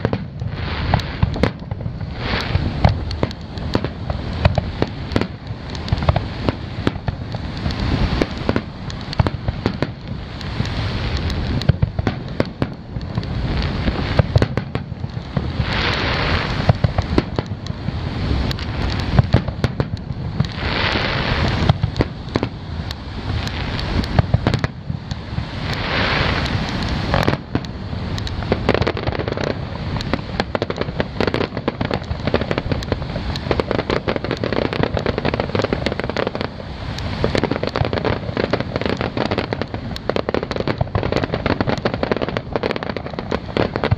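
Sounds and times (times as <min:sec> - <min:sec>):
fireworks bangs and booms: 0:00.0 - 0:43.9
fireworks hissing: 0:00.0 - 0:43.9.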